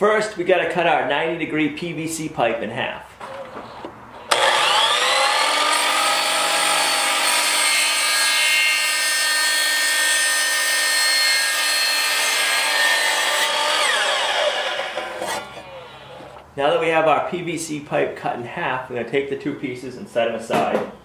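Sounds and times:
miter saw motor whine: 4.3 - 7.2.

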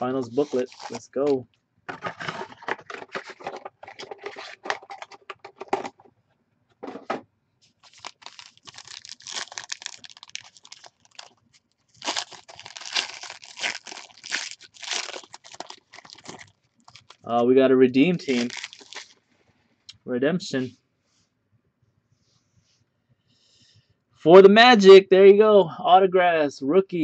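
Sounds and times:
foil wrapper crinkling: 0.3 - 1.4, 7.8 - 17.4, 18.1 - 19.2
foil wrapper tearing: 0.3 - 1.4, 7.8 - 17.3, 18.1 - 19.2.

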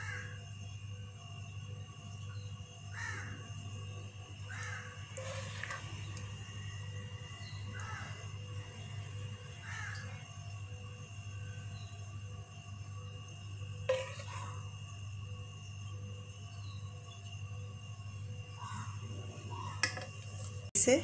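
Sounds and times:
crows cawing: 0.0 - 0.4, 2.9 - 3.5, 4.5 - 5.8, 7.4 - 8.4, 9.5 - 10.3, 18.6 - 20.0
steady low hum: 0.0 - 21.0.

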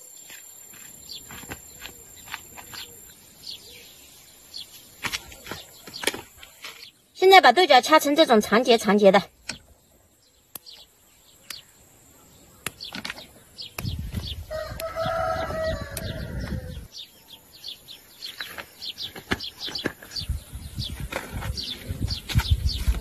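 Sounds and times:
small birds chirping: 0.0 - 23.0
rooster crowing: 14.5 - 16.9.

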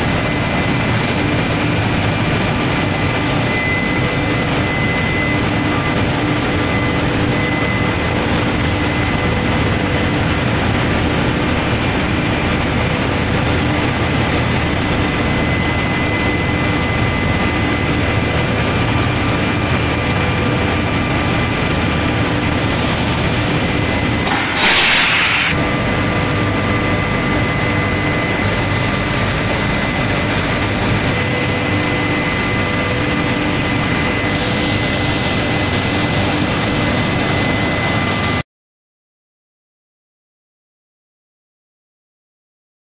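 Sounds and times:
machine whine and hum: 0.0 - 38.4
loud hiss: 24.3 - 25.6.

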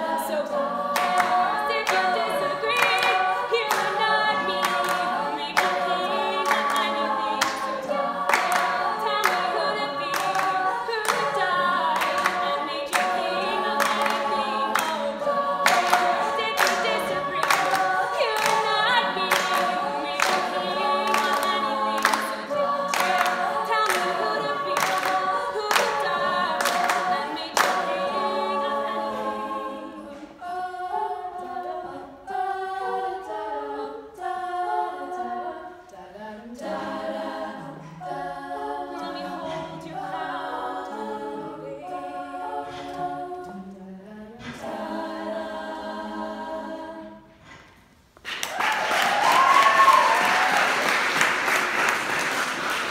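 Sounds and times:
female a cappella group singing: 0.0 - 51.1
group clapping in time: 0.8 - 29.3, 48.2 - 52.9
audience applause: 48.2 - 52.9
audience whoop: 48.3 - 51.1.

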